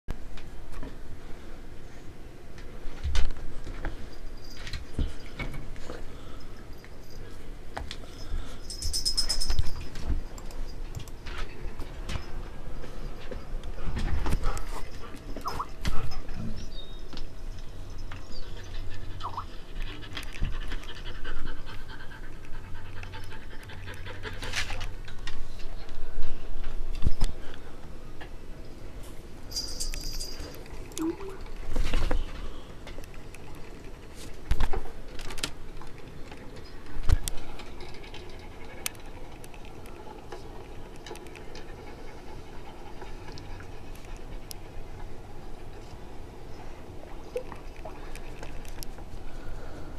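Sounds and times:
dogs panting: 8.1 - 25.1, 36.1 - 46.6.

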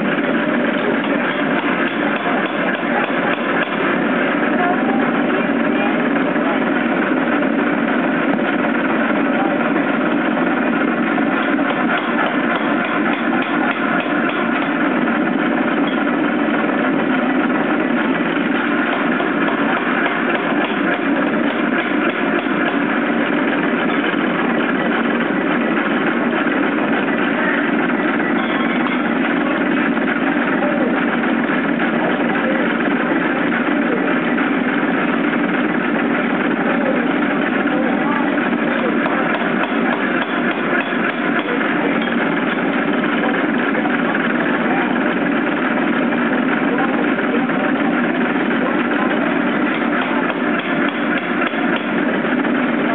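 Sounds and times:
air hammer clattering: 10.9 - 30.3, 37.4 - 44.2, 48.6 - 52.9.

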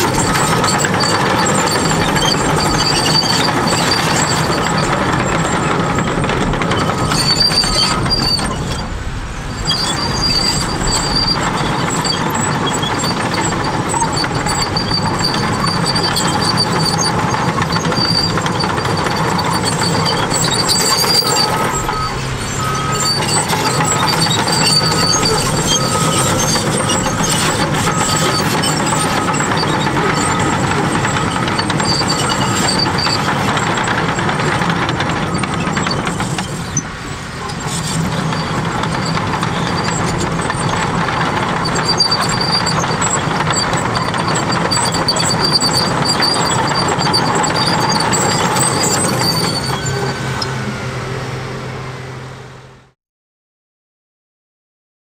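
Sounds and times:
steel tracks clanking and squealing: 0.0 - 52.0
bulldozer diesel engine running: 0.0 - 53.0
reversing alarm beeping: 9.6 - 33.8.

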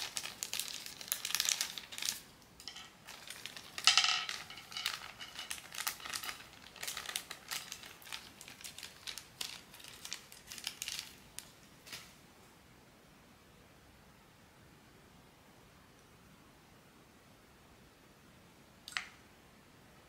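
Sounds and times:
plastic packaging crinkling: 0.0 - 12.2.

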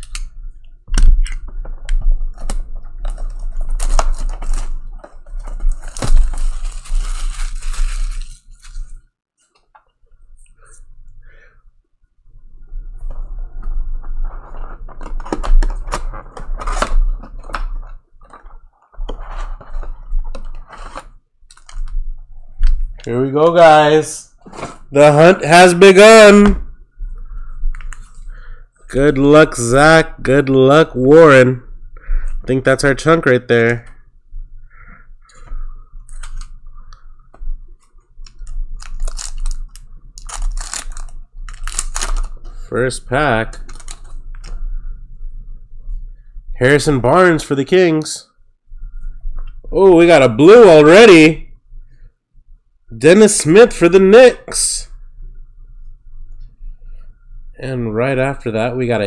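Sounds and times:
packaging crinkling and clicking: 1.1 - 8.9, 14.9 - 22.0, 38.2 - 42.4, 43.5 - 44.6.

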